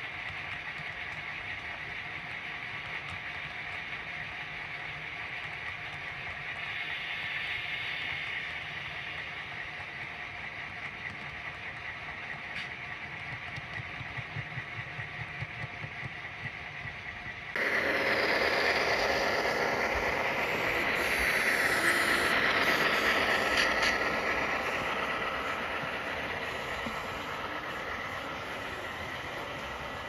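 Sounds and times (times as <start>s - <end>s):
train rumbling on rails: 0.0s - 30.0s
wheels whining on rail: 0.0s - 30.0s.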